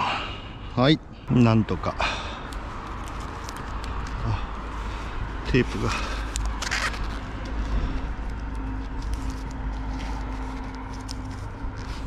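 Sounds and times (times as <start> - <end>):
tape rustling and crackling: 2.4 - 12.0.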